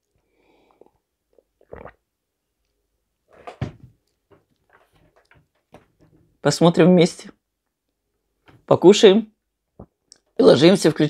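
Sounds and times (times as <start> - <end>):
person sipping tea: 0.5 - 2.1.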